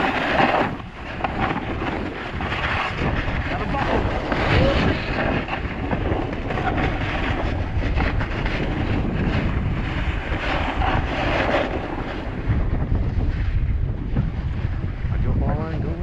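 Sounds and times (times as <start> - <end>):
skis scraping over snow: 0.0 - 15.3
wind buffeting microphone: 0.0 - 16.0.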